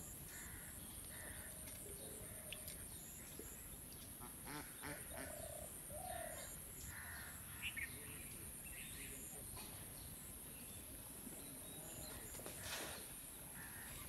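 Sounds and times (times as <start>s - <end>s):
steady high hiss: 0.0s - 1.3s
faint bird calls: 0.0s - 10.7s, 11.4s - 14.0s.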